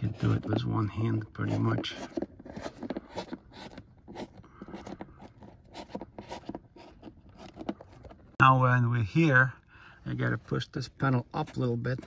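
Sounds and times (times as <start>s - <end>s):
cable scratching on fabric: 0.0s - 7.9s.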